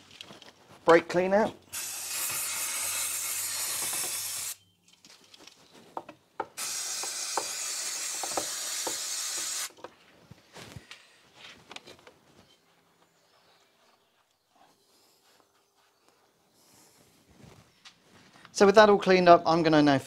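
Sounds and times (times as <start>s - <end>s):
aerosol can spraying: 1.7s - 4.6s, 6.6s - 9.8s.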